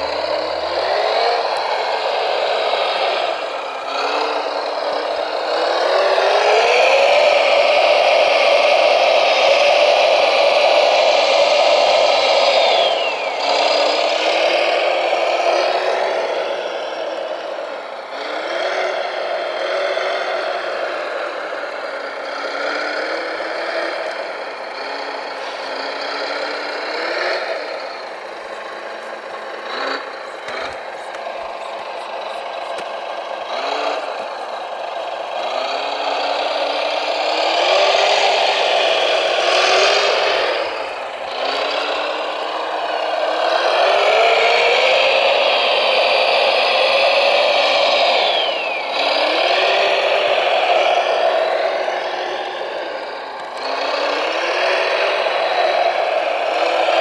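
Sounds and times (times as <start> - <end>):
model loader motors whining: 0.0 - 57.0.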